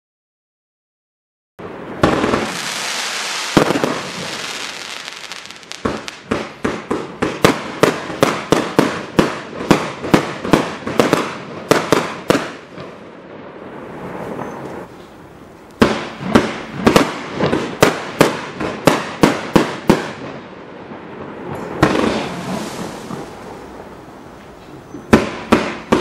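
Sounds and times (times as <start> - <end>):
firework bang: 1.6 - 12.9, 15.8 - 20.4, 21.2 - 26.0
firework rushing noise: 1.6 - 20.4, 21.0 - 26.0
rapid firework shots: 2.0 - 12.9, 15.8 - 20.4, 21.4 - 23.6, 25.1 - 26.0.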